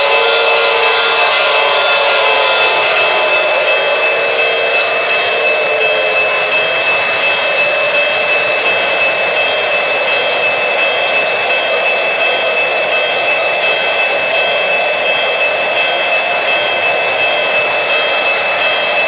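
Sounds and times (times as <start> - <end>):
high steady tone: 0.0 - 19.0
model train whine: 0.0 - 19.0.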